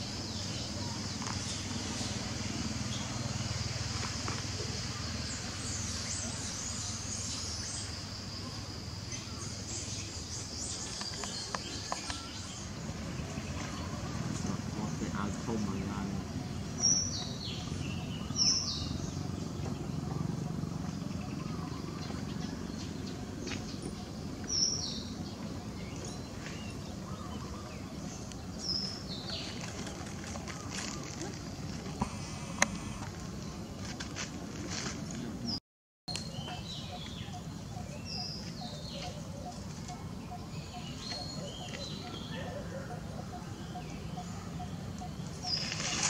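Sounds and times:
high insect drone: 0.0s - 34.0s
chirping calls: 0.0s - 34.1s, 36.1s - 46.0s
outdoor background noise: 0.0s - 46.0s.

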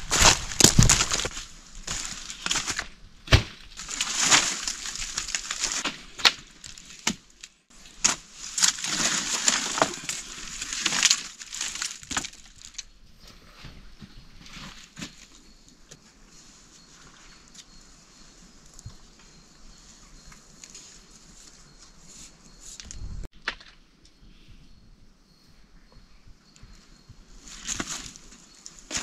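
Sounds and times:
dry leaves crunching underfoot: 0.0s - 2.9s, 3.7s - 12.8s
bamboo poles clattering: 0.0s - 12.9s, 27.5s - 29.0s.

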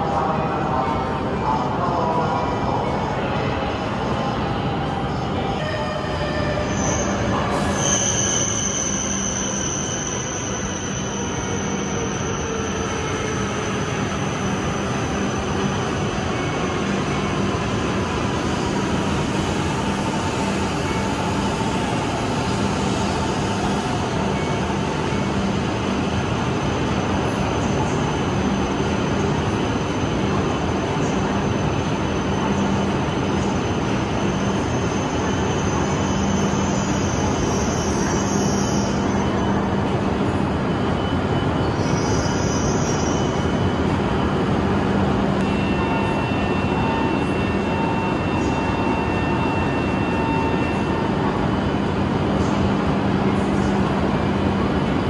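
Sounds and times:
train wheel and running noise: 0.0s - 55.0s.

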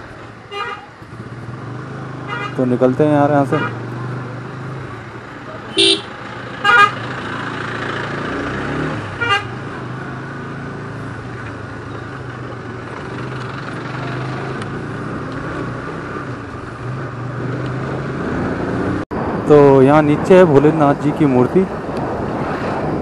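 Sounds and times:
horn beeps: 5.7s - 6.1s.

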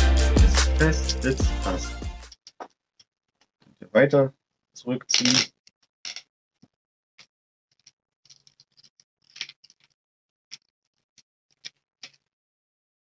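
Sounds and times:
plastic parts clicking and rattling: 5.1s - 6.8s, 7.7s - 12.3s.

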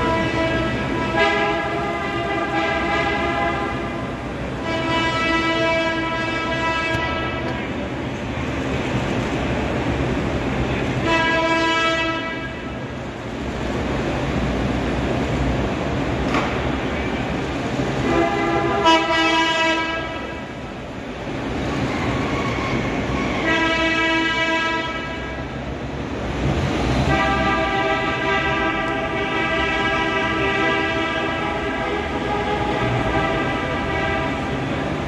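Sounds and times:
car horns honking: 0.0s - 8.0s, 10.7s - 12.9s, 17.9s - 20.7s, 21.6s - 25.6s, 26.8s - 35.0s
traffic rumble: 0.0s - 35.0s.

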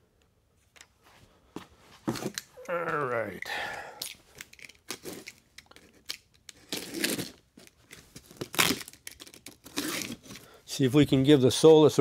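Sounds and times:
packing tape tearing: 4.3s - 10.6s.

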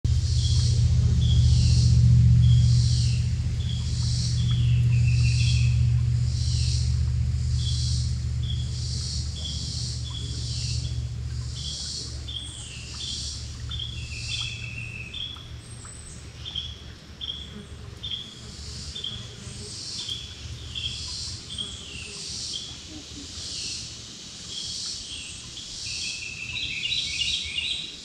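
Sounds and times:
low hum: 0.0s - 22.0s
birds calling: 0.1s - 28.0s
insects calling: 0.1s - 28.0s.

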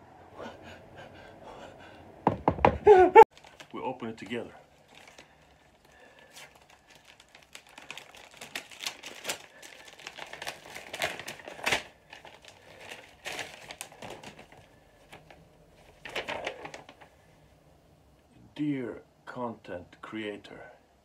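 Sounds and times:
paper letter rustling and crinkling: 3.3s - 17.3s.

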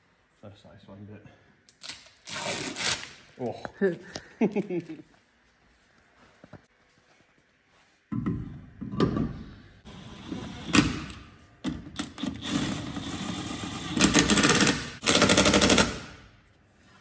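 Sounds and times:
pneumatic impact wrench hammering: 12.0s - 16.2s.

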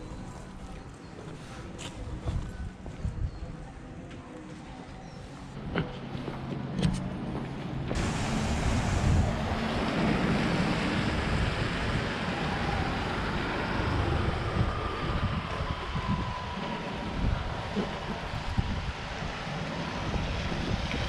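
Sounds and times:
faint street traffic: 0.0s - 21.0s
wind on microphone: 1.9s - 3.9s, 7.9s - 21.0s.

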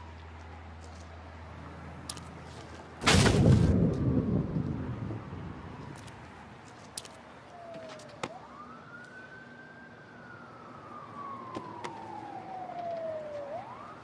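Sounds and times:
faint siren wailing: 7.3s - 14.0s.

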